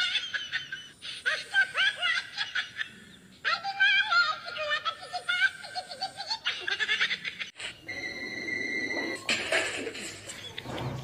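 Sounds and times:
person giggling and laughing: 0:00.0 - 0:03.1, 0:04.6 - 0:07.8.

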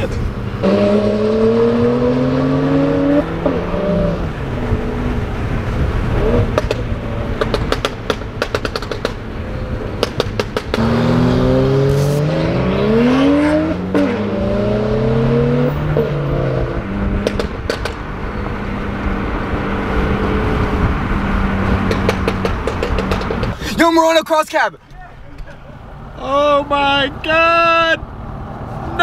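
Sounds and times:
car engine revving: 0:00.0 - 0:23.6
exhaust popping and crackling: 0:04.2 - 0:12.9, 0:16.8 - 0:18.4, 0:20.9 - 0:24.0.

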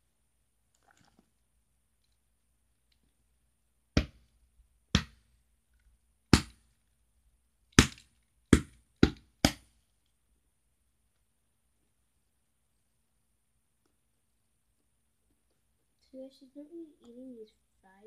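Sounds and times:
hand patting doll: 0:03.9 - 0:05.3, 0:06.3 - 0:06.8, 0:07.7 - 0:09.8.

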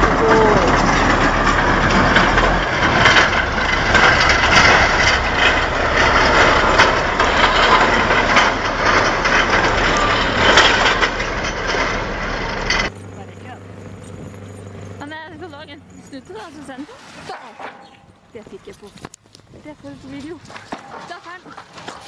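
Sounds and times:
sharp cracks: 0:00.0 - 0:13.1
tractor engine and tracks clattering: 0:00.0 - 0:22.0.

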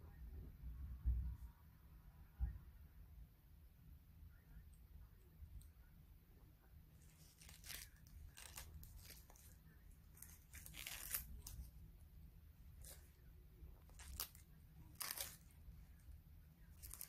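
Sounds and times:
leaf being torn with crackling rustles: 0:07.1 - 0:11.7, 0:13.8 - 0:15.5, 0:16.8 - 0:17.0.

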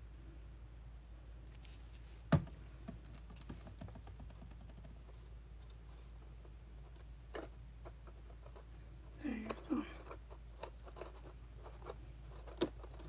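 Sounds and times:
cardstock clicking and rustling: 0:09.3 - 0:13.0.

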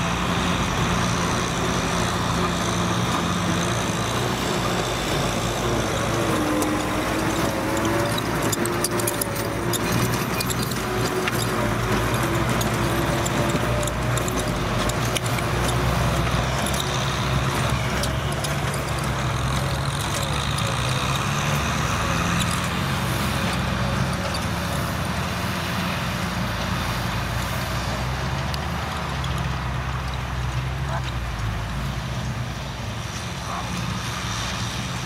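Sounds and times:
tractor diesel engine running: 0:00.0 - 0:35.0
small clicks and rattles: 0:02.4 - 0:25.6, 0:28.3 - 0:31.6.

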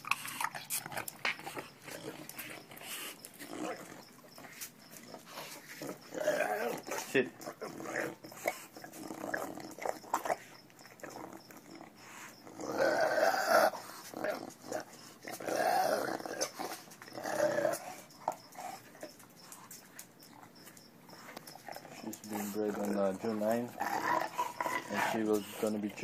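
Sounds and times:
dog making throaty sounds: 0:00.0 - 0:26.0.

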